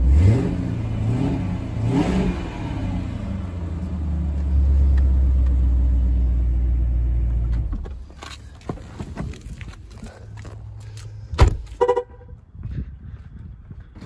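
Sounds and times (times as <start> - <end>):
car engine revving and idling: 0.0 - 7.8.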